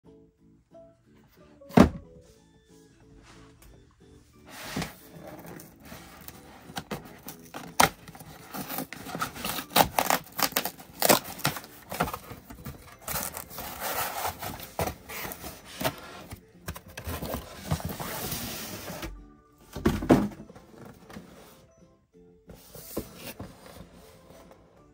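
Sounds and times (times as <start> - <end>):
cardboard box being opened: 4.7 - 19.0.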